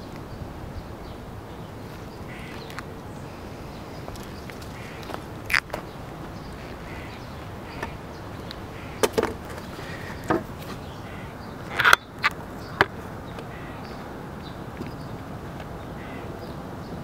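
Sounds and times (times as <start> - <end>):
turtle beak snapping: 4.1 - 5.8.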